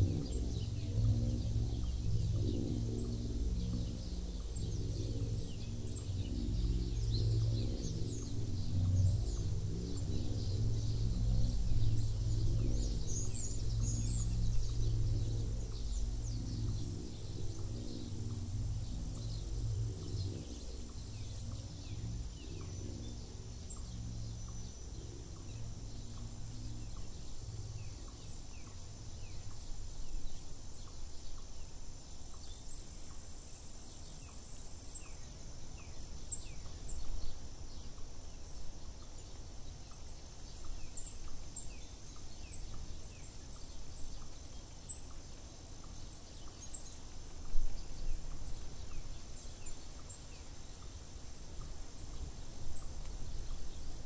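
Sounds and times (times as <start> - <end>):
low rumble: 0.0 - 29.2
small birds chirping: 0.0 - 54.0
steady high hiss: 0.0 - 54.0.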